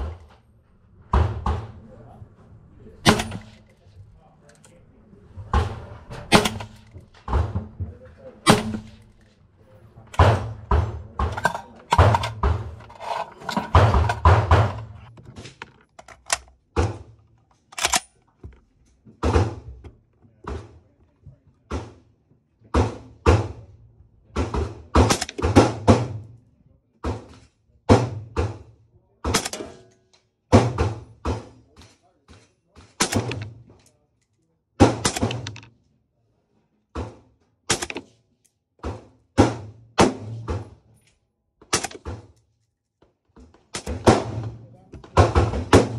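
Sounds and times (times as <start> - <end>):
suppressed rifle shots: 3.0 - 3.6, 6.3 - 6.9, 8.4 - 9.2.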